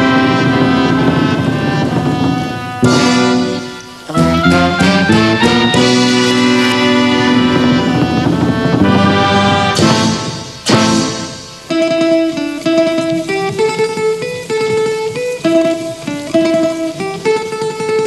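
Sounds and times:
bass guitar: 0.0s - 13.6s
band ensemble playing: 0.0s - 18.0s
plucked lute melody: 0.0s - 18.0s.

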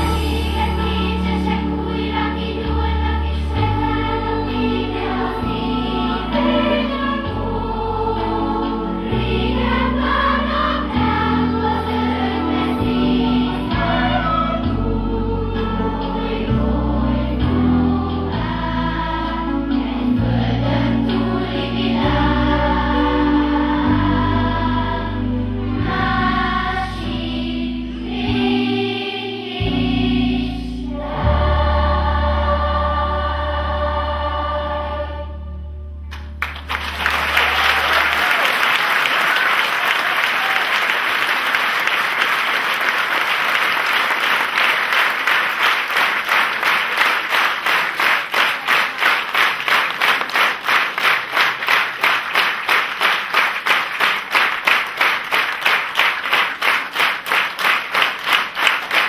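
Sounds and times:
children's choir singing: 0.0s - 35.8s, 37.2s - 59.0s
audience applause: 36.1s - 59.0s
rhythmic clapping in unison: 36.1s - 59.0s.

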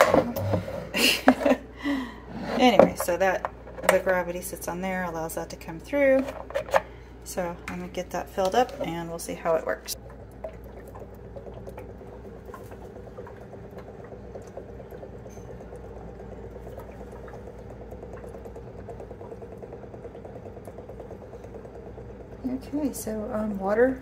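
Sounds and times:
water running into bowl: 7.4s - 24.0s
air bubbling in bottle: 8.5s - 24.0s.

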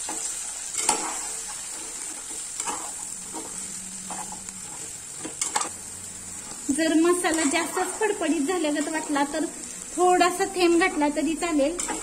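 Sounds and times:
okra sizzling in oil: 0.0s - 12.0s
metal spatula scraping pot: 11.7s - 12.0s.

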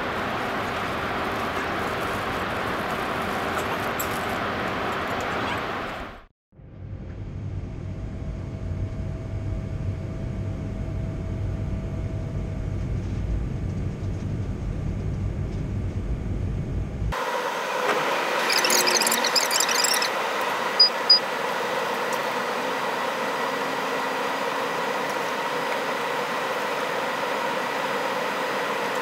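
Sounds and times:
airliner cabin rumble: 0.0s - 6.2s
high beeps: 18.4s - 20.1s, 20.8s - 21.2s
high-pitched rattle: 18.4s - 20.1s.

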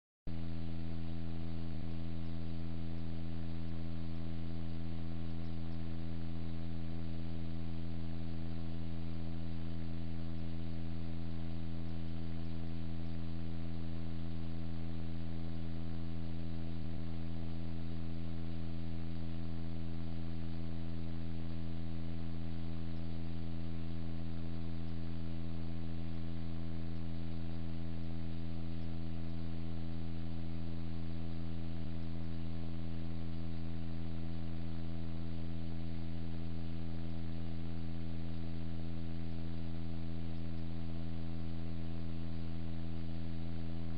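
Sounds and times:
low electrical hum: 0.3s - 43.9s.

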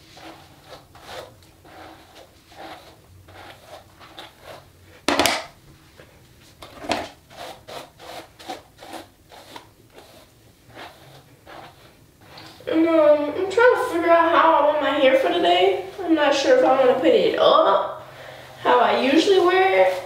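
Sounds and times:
hairbrush brushing hair: 0.0s - 4.7s, 6.9s - 12.7s, 18.7s - 20.0s.

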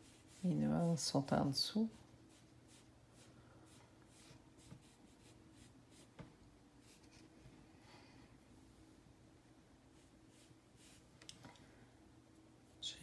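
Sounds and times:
sponge rubbing on paper: 0.0s - 6.2s.

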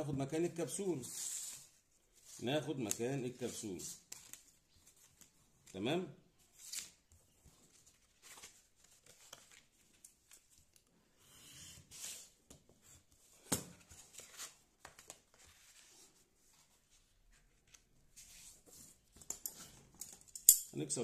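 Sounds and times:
paper rustling: 1.1s - 5.4s, 6.4s - 10.9s, 13.8s - 19.0s.

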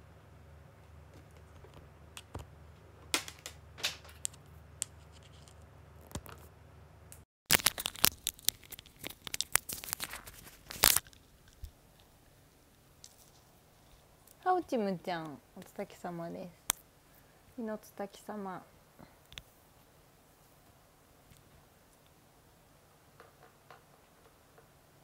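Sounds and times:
background hum: 0.0s - 25.0s
cable rustling and scraping: 0.8s - 6.5s, 7.5s - 12.1s.

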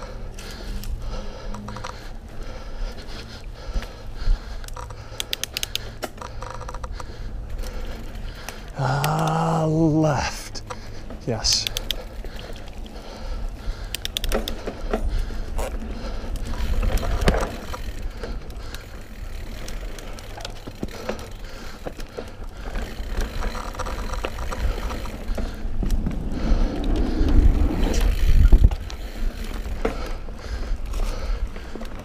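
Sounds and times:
bike clicks and knocks over bumps: 0.0s - 10.0s, 10.6s - 32.0s
mountain bike tyre noise: 0.0s - 32.0s
low rumble: 24.6s - 29.2s.

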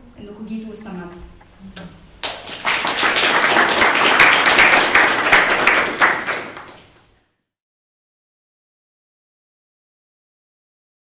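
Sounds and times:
audience applauding: 2.2s - 6.9s.

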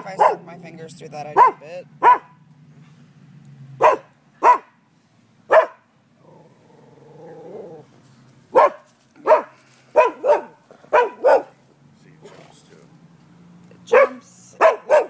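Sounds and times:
dog barking: 0.0s - 0.6s, 1.3s - 2.4s, 3.8s - 4.8s, 5.5s - 5.9s, 8.5s - 11.6s, 13.9s - 15.0s.

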